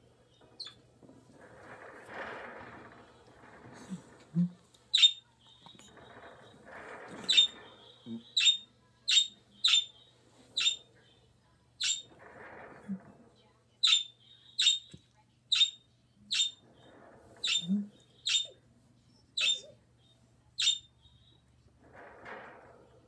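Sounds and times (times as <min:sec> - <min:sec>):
soft bird sounds: 0:04.9 - 0:11.1, 0:11.8 - 0:12.1, 0:13.8 - 0:21.5.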